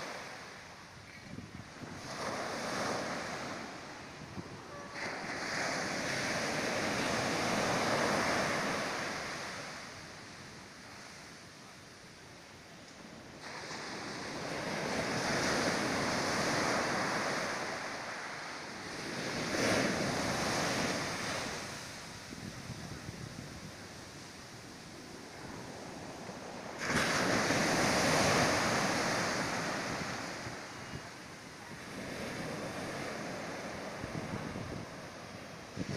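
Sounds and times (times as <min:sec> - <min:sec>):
sea surf breaking on beach: 0:00.0 - 0:12.0, 0:13.2 - 0:35.9.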